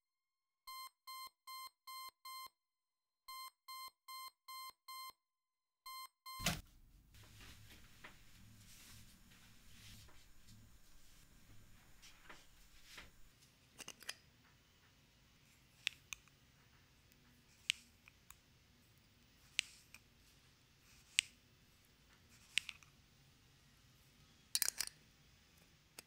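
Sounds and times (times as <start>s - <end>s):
metal spoon clinking against jar: 24.6s - 24.9s.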